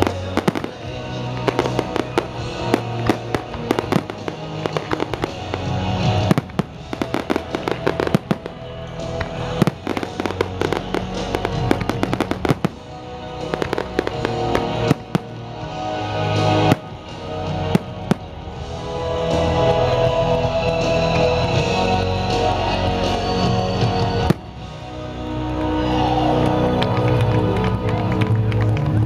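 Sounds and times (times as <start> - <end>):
fireworks bursting and crackling: 0.0 - 20.4, 23.0 - 24.9
music playing: 0.0 - 29.0.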